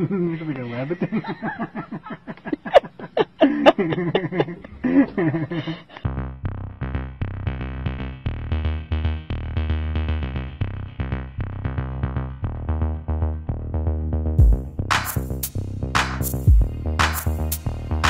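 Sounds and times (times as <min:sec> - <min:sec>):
person laughing: 0:00.0 - 0:06.1
electronic music with drum-machine beat: 0:06.0 - 0:18.0.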